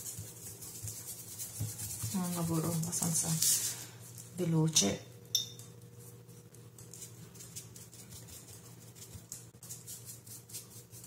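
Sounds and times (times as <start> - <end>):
paintbrush scratching on wood: 0.0 - 3.8, 6.0 - 11.0.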